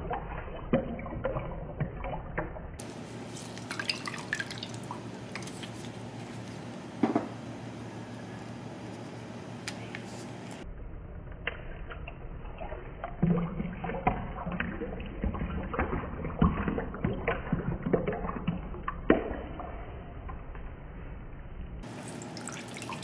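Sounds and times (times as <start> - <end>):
juice splashing into metal tin: 3.4 - 5.8.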